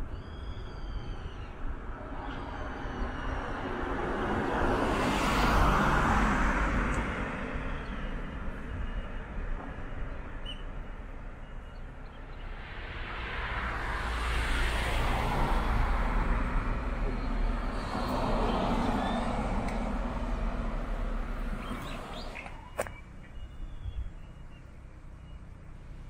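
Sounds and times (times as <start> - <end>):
vehicle passing by: 2.1 - 7.9, 12.5 - 22.9.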